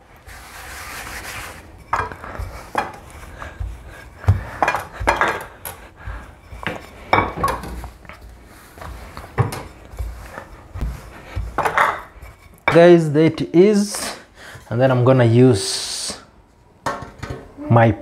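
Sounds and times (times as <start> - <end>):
pans and utensils clinking: 1.8 - 3.0, 4.4 - 5.8, 11.4 - 12.8.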